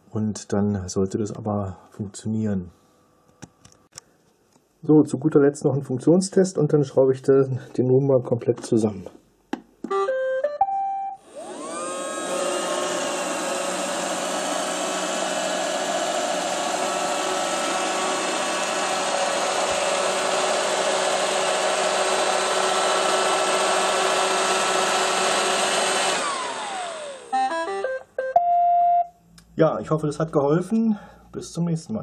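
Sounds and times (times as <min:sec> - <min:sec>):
robot vacuum beeping melody: 0:09.9 - 0:11.9, 0:27.3 - 0:29.1
robot vacuum motors whining: 0:11.2 - 0:27.7.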